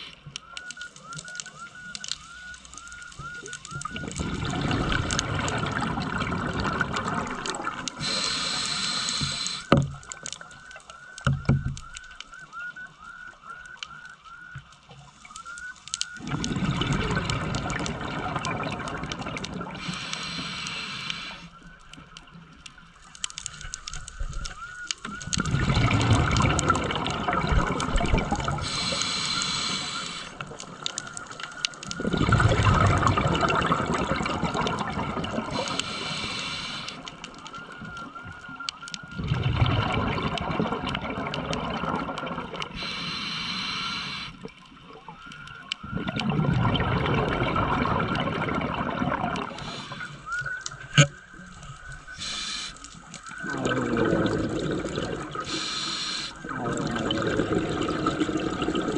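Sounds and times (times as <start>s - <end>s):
scuba regulator bubbles exhaling: 3.3s - 9.8s, 16.2s - 21.4s, 25.1s - 38.2s, 39.1s - 44.3s, 45.8s - 51.2s, 51.9s - 58.9s
hissing regulator inhalation: 7.7s - 9.8s, 19.6s - 21.5s, 28.5s - 30.5s, 35.5s - 37.2s, 42.7s - 44.5s, 49.4s - 50.3s, 52.2s - 58.9s.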